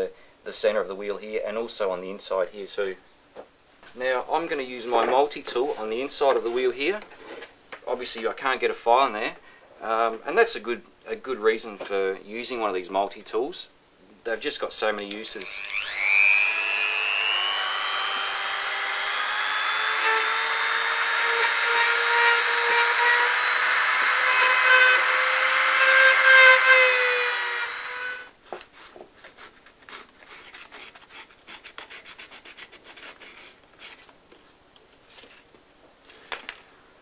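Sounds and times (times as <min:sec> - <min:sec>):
rotary tool grinding whine: 0:15.4 - 0:28.3.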